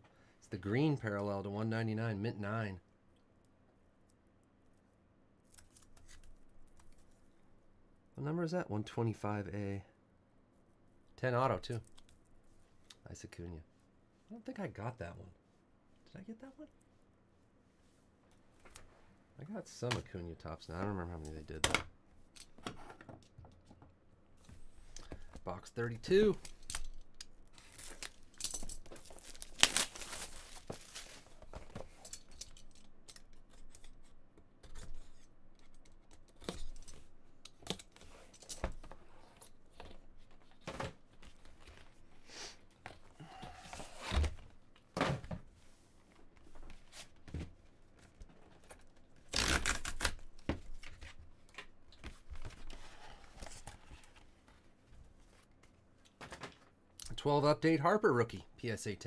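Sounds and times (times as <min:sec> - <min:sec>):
plastic shrink wrap tearing: 0:27.5 - 0:31.2, 0:49.3 - 0:50.2.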